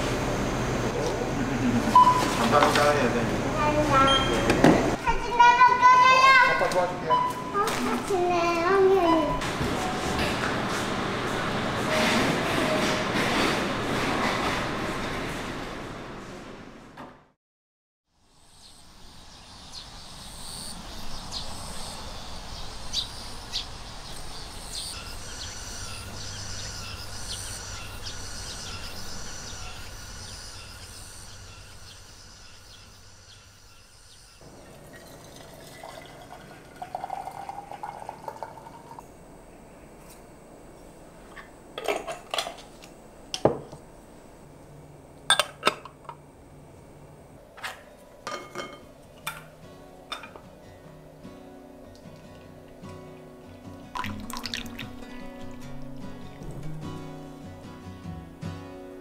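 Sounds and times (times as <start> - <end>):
cups and dishes clinking: 34.5 - 39.0, 45.3 - 46.2, 48.2 - 49.5, 50.1 - 50.5, 54.0 - 55.7
liquid pouring: 34.5 - 39.1, 53.9 - 56.6.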